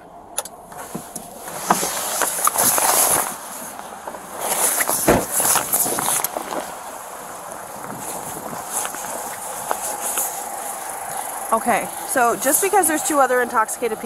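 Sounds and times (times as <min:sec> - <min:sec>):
clothing rustling on microphone: 0:00.7 - 0:12.9
car door thumping shut: 0:04.8 - 0:06.1.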